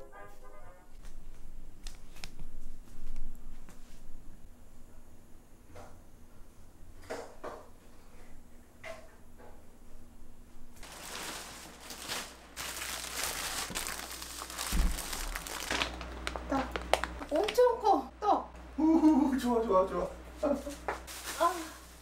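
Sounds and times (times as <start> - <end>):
plastic bag rustling: 10.8 - 17.6, 20.5 - 22.0.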